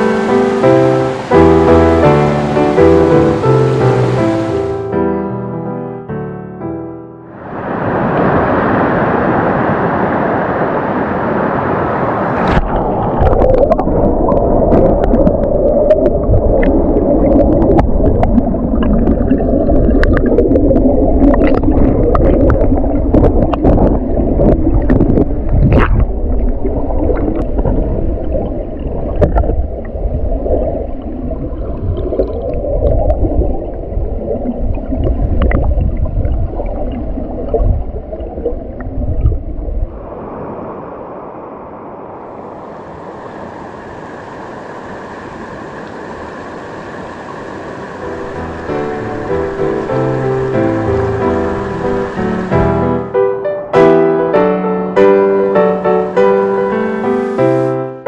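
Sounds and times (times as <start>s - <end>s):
stream rushing: 0.0s - 5.0s, 7.3s - 35.6s, 39.9s - 58.0s
muffled underwater current gurgle: 12.3s - 53.2s.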